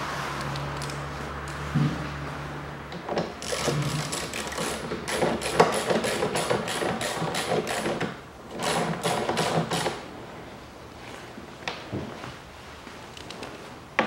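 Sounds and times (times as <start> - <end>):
hand ratchet clicking: 3.4 - 10.0.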